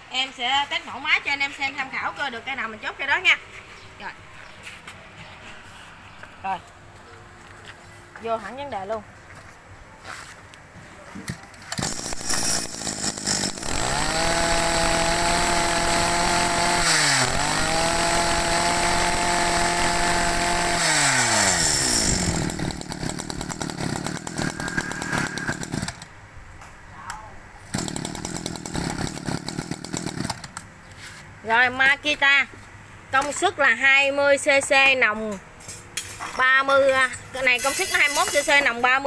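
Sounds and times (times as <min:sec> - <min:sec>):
brush cutter engine revving: 0:11.7 - 0:26.0, 0:27.7 - 0:30.5.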